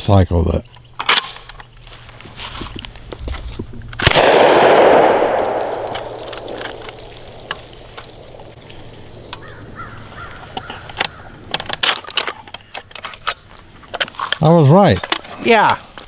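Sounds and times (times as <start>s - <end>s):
shotgun blast with echo: 4.0s - 7.4s
gun handling clicks: 4.0s - 9.5s.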